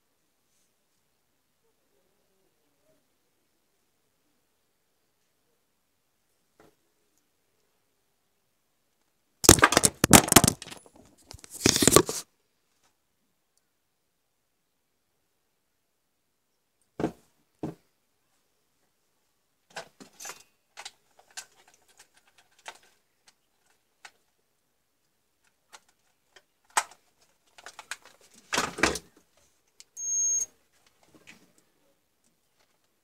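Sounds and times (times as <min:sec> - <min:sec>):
short high multimeter beep: 0:30.0 - 0:30.5.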